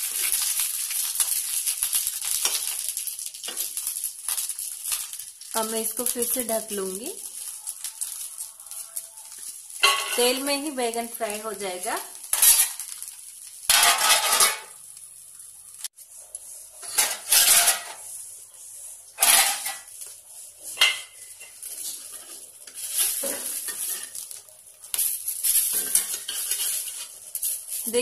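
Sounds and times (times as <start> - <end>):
frying sizzle: 0.0 - 28.0
metal spatula scraping pan: 9.3 - 10.5, 13.7 - 14.7, 16.8 - 18.1, 19.2 - 19.9, 20.6 - 24.4, 25.0 - 27.8.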